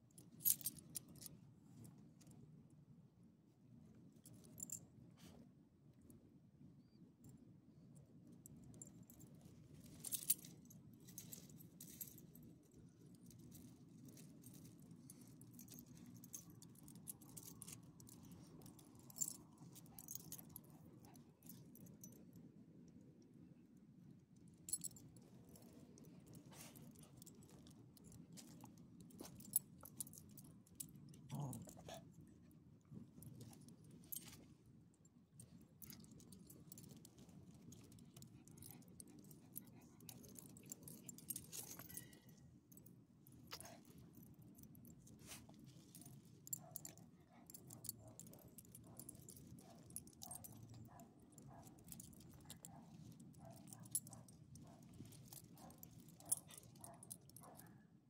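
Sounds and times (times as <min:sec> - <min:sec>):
low steady hum: 0:00.0 - 0:57.7
dog collar tags jingling: 0:13.3 - 0:22.3, 0:24.7 - 0:32.0, 0:35.8 - 0:57.8.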